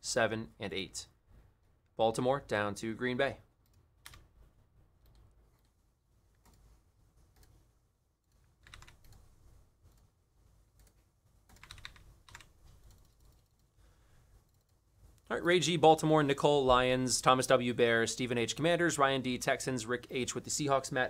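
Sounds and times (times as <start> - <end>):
keyboard typing: 5.0 - 5.7, 8.3 - 10.1, 10.8 - 13.7.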